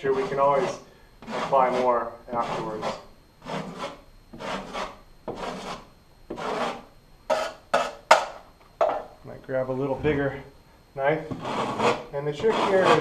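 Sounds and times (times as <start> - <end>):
drywall knife scraping wall: 0.0 - 8.2, 11.3 - 13.0.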